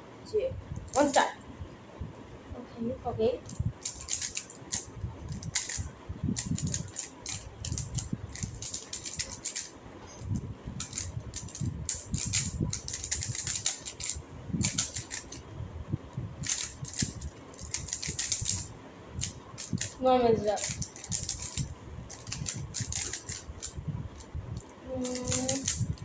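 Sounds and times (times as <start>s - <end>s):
plastic puzzle cubes clicking: 3.5s - 5.8s, 6.4s - 9.7s, 10.8s - 15.4s, 16.4s - 20.0s, 20.6s - 23.7s, 25.0s - 26.0s.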